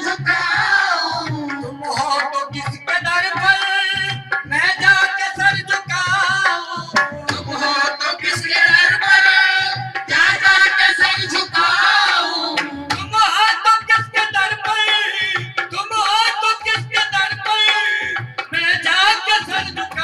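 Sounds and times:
hand drums beat: 0.0s - 20.0s
person singing: 0.0s - 20.0s.

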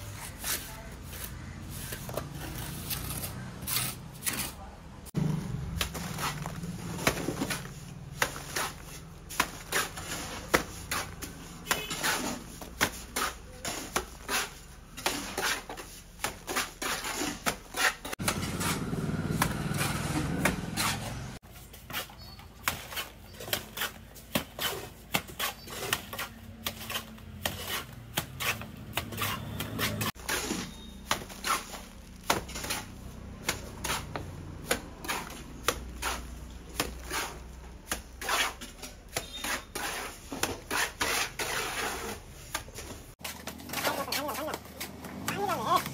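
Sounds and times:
trowel scraping wet mortar: 0.0s - 4.7s, 5.8s - 45.9s.

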